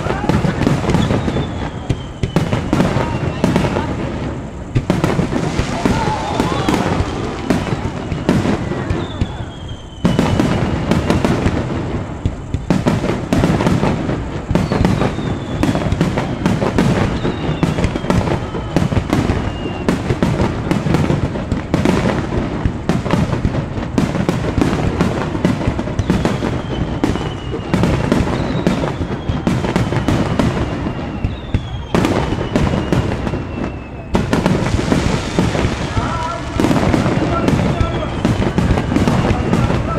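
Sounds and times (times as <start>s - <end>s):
falling whistling tones: 0.0s - 21.3s, 24.3s - 39.9s
firework shells bursting: 0.0s - 39.9s.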